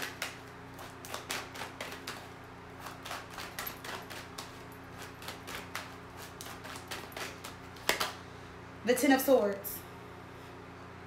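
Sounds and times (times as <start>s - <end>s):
cards shuffled tapping: 0.0s - 8.2s
low steady hum: 0.0s - 11.0s.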